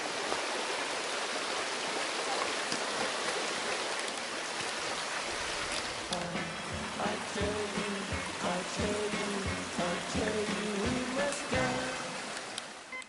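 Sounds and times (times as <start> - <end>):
stream running over stones: 0.0 - 13.0.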